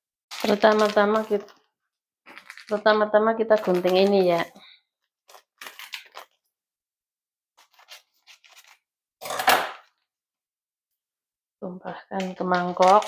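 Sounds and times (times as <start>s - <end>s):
scissors snipping plastic: 11.8s - 13.0s.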